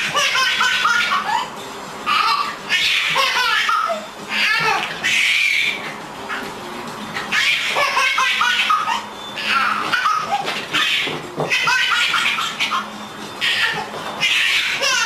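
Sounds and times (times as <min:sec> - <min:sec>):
baby laughing: 0:00.0 - 0:06.5, 0:07.1 - 0:15.0.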